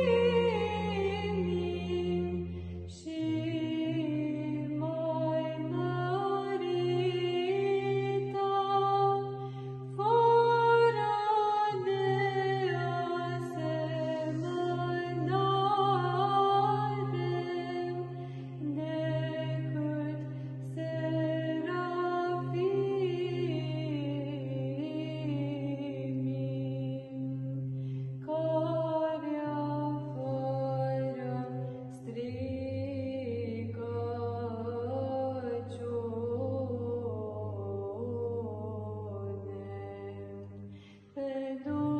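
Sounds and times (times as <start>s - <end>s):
woman chanting: 0.0s - 9.3s, 10.0s - 27.6s, 28.3s - 40.6s, 41.2s - 41.9s
low held vocal drone: 0.0s - 41.9s.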